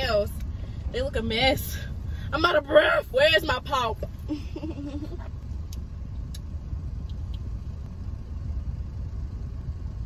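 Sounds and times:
car engine idling: 0.0s - 10.0s.

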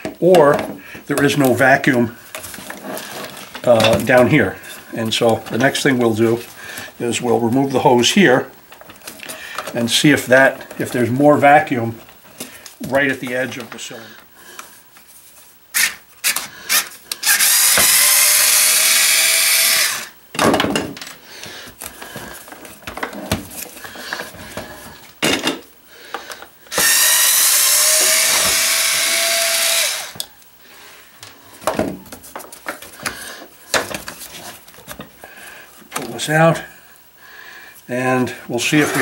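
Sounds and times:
electric screwdriver whining: 15.8s - 20.2s, 26.7s - 30.3s.

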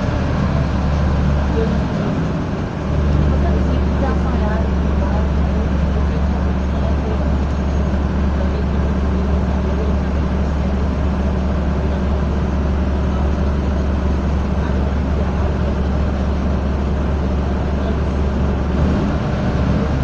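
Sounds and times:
bus diesel engine drone: 0.0s - 20.0s
road noise: 0.0s - 20.0s.

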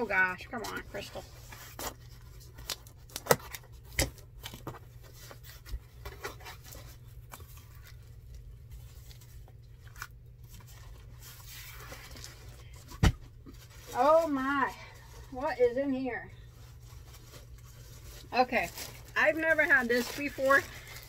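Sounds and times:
plastic bags rustling: 0.0s - 21.0s.

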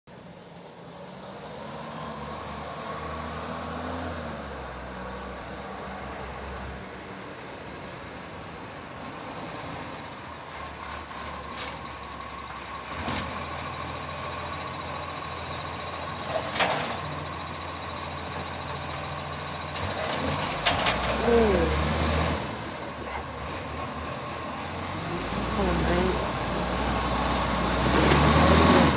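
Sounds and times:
truck diesel engine running: 7.9s - 28.9s.

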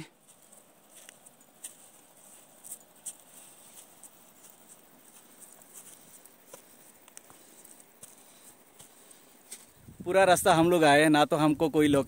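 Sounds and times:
footsteps on dirt trail: 0.0s - 10.8s
light ticks: 6.5s - 7.4s.

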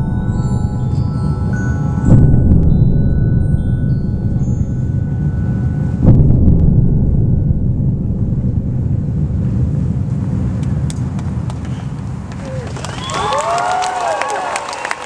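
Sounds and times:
booming hit: 0.0s - 12.0s
deep electronic rumbling drone: 0.0s - 12.8s.

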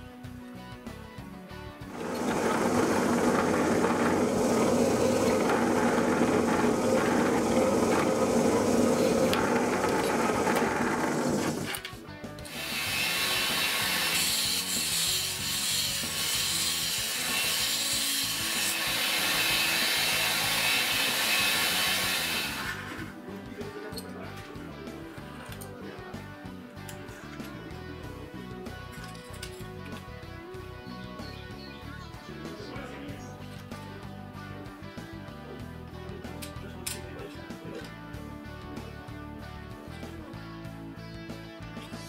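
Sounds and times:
belt sander hiss and whine: 1.9s - 11.8s
drill press boring into wood: 1.9s - 11.8s, 12.5s - 23.1s.

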